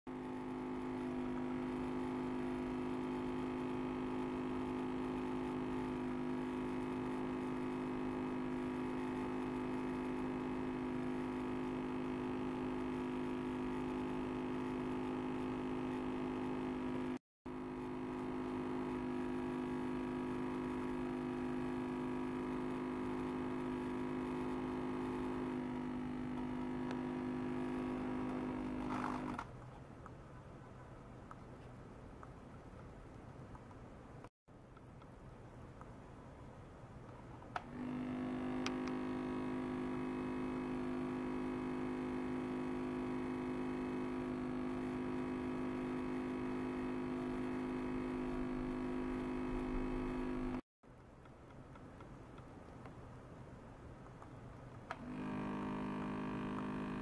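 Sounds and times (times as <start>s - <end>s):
ultrasonic cleaner humming: 0.1s - 29.4s, 37.6s - 50.6s, 54.9s - 57.0s.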